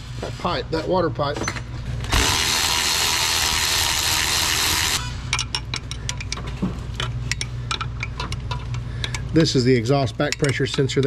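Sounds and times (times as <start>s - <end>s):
low steady hum: 0.0s - 11.0s
power tool hissing: 2.1s - 5.2s
metallic clicks of tools: 5.3s - 9.4s, 10.0s - 11.0s.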